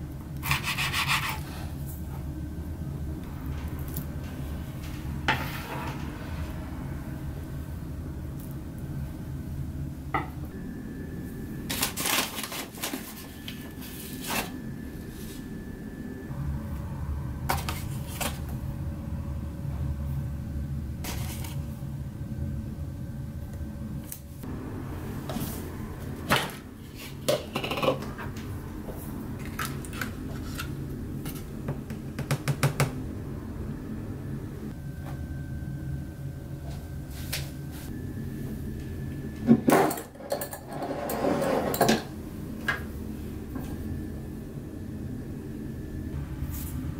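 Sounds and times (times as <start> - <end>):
steady low hum: 0.0 - 46.9.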